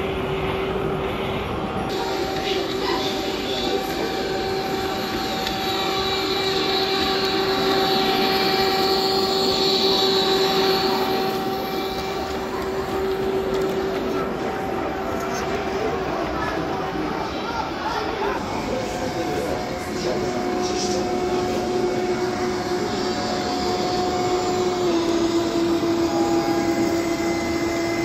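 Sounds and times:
steady hum: 0.0s - 28.0s
model train rolling: 1.9s - 28.0s.

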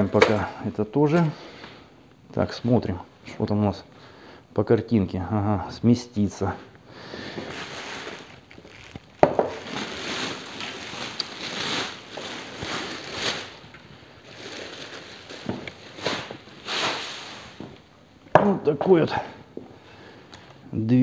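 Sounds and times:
plastic bag rustling: 6.4s - 17.9s.

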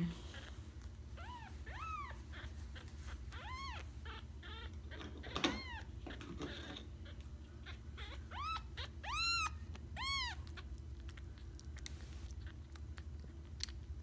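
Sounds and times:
kitten suckling clicks: 9.7s - 14.0s.

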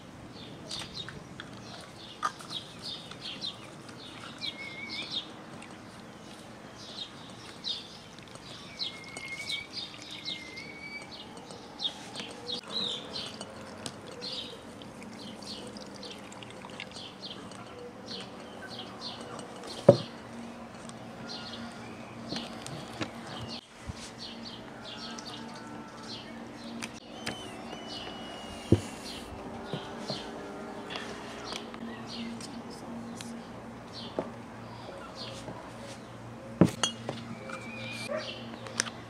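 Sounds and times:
small birds chirping: 0.3s - 39.0s
whistled bird calls: 4.4s - 5.3s, 8.6s - 11.6s, 27.0s - 29.3s, 37.2s - 38.2s
liquid pouring into glass jar: 12.8s - 17.8s.

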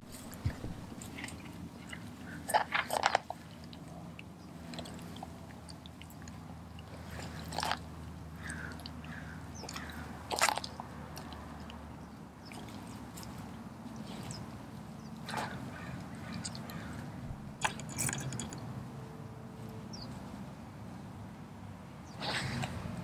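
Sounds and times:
dog chewing and crunching: 0.0s - 11.8s.

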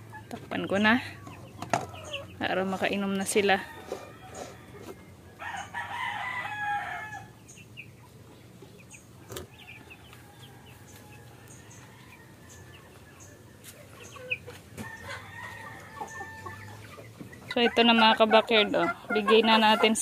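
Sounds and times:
chickens chirping and clucking: 0.0s - 20.0s
rooster crowing: 3.6s - 7.3s, 14.8s - 16.8s.

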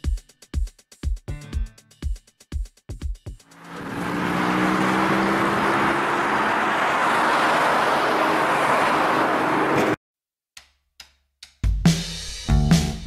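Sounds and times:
car engine hum: 3.5s - 10.0s
tyre and road noise: 3.5s - 10.0s.

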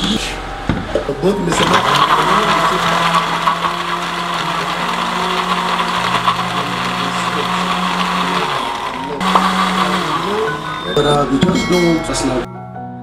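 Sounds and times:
blender running: 1.5s - 11.4s.

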